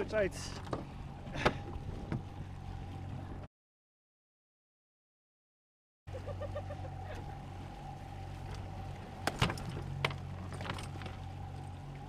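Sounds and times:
boat engine humming: 0:00.0 - 0:03.5, 0:06.1 - 0:12.0.

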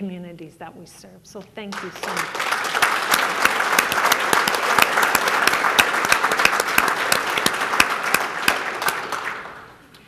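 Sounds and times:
audience applauding: 0:01.8 - 0:09.8.

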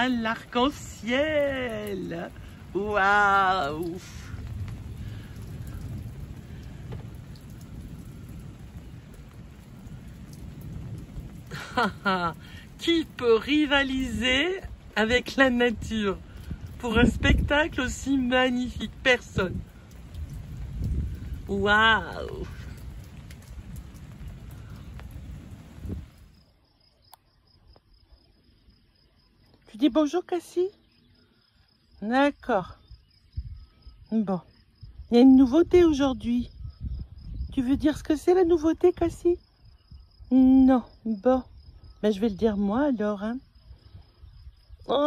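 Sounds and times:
low outdoor rumble: 0:00.0 - 0:26.6
faint dripping ticks: 0:00.0 - 0:30.0, 0:30.7 - 0:45.0.

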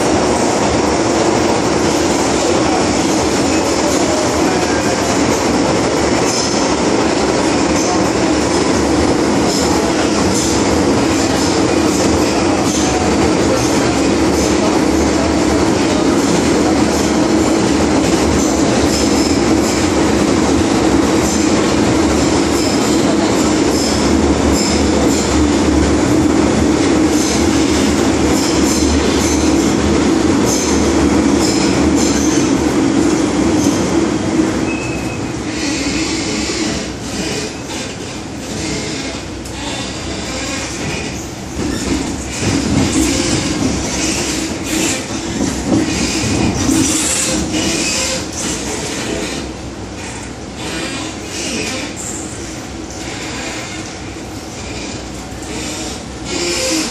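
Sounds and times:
train wheels rumbling on rail: 0:00.0 - 0:56.9
high-pitched wheel squeals: 0:34.6 - 0:36.9, 0:54.8 - 0:56.9.

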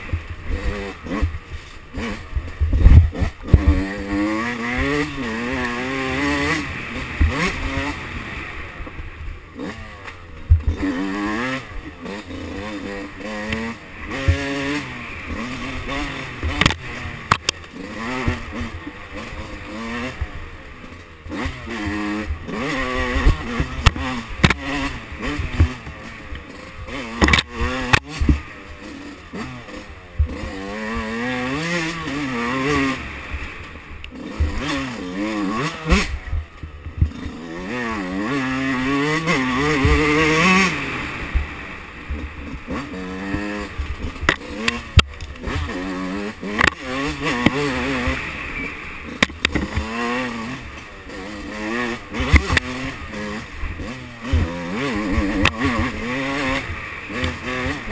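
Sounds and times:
two-stroke motorcycle engine revving: 0:00.0 - 0:57.9
sharp knocks and clicks: 0:16.4 - 0:18.4, 0:23.2 - 0:24.6, 0:27.2 - 0:28.5, 0:49.2 - 0:49.9.

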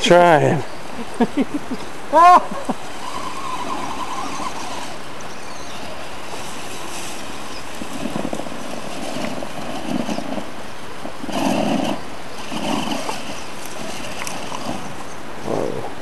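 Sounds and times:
background hiss: 0:00.0 - 0:16.0
toy car motors whirring: 0:02.7 - 0:10.4.

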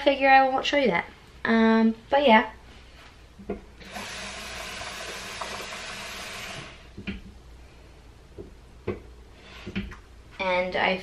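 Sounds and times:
tap running water into bowl: 0:04.6 - 0:06.7.

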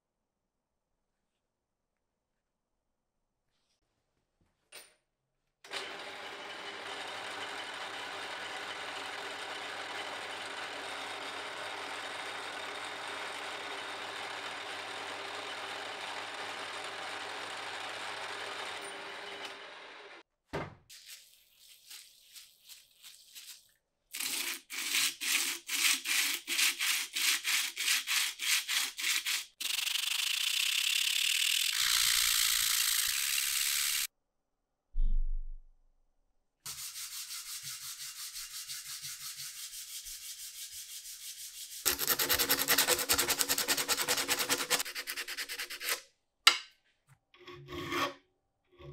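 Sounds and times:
milling machine running: 0:05.7 - 0:20.2
hand sanding on abrasive: 0:24.2 - 0:29.6, 0:36.7 - 0:46.0.

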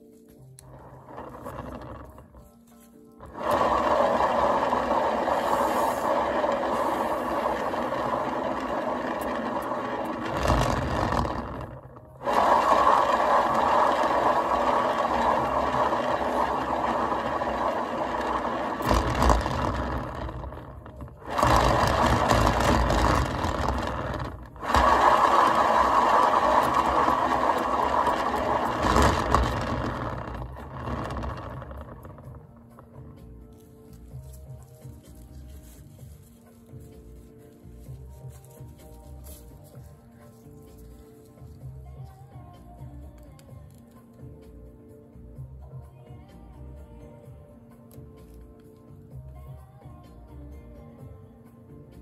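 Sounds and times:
spinner turntable whirring and rattling: 0:00.6 - 0:02.5, 0:03.2 - 0:39.0.

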